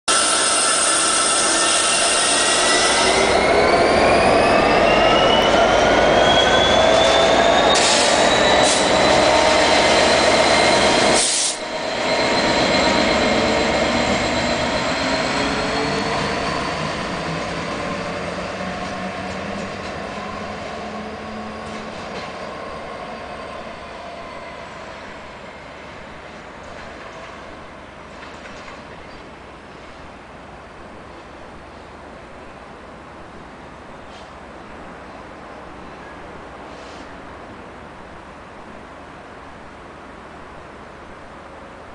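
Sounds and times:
rising engine whine: 0.1s - 26.0s
diesel locomotive pulling away: 0.1s - 30.1s.

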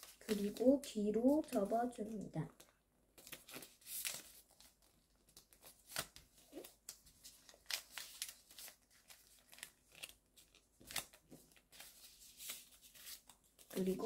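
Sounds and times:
paper rustling and crinkling: 0.0s - 14.0s.

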